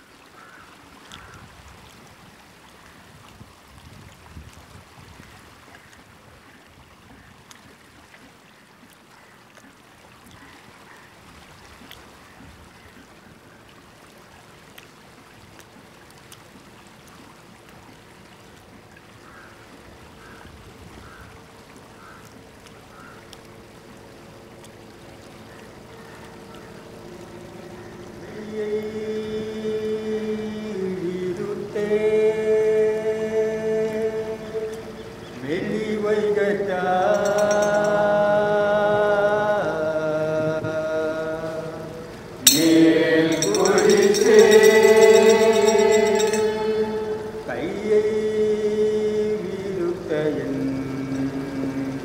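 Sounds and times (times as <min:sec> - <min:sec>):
soft wash of water: 0:00.0 - 0:52.0
bird calling: 0:22.0 - 0:23.4, 0:36.7 - 0:38.4
low steady tone: 0:23.3 - 0:52.0
faint ticks: 0:37.0 - 0:38.2.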